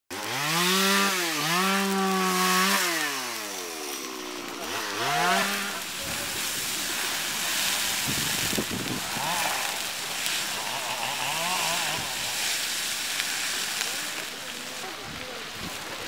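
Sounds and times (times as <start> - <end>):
small engine revving: 0.1 - 14.4
rough rumbling noise: 3.5 - 16.0.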